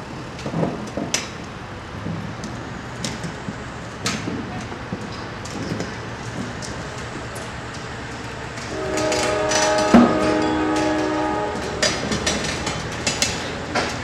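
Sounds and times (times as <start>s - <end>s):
multi-tone train horn: 8.6s - 12.7s
metallic clanks and clicks: 8.6s - 14.0s.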